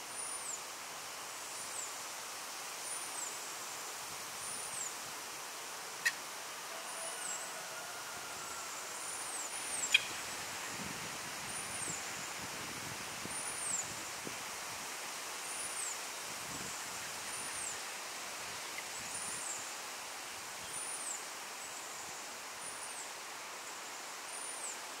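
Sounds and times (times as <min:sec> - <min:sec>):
steady outdoor hiss: 0:00.0 - 0:25.0.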